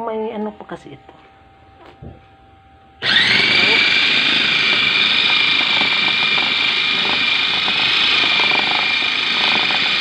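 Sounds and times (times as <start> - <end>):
food processor motor whining: 3.0 - 10.0.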